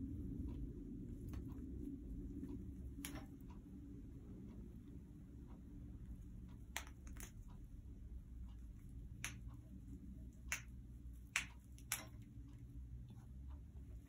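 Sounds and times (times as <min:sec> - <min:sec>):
faint low hum: 0:00.0 - 0:14.0
beak clicking on wood: 0:06.6 - 0:07.5, 0:09.1 - 0:09.8, 0:10.4 - 0:12.4.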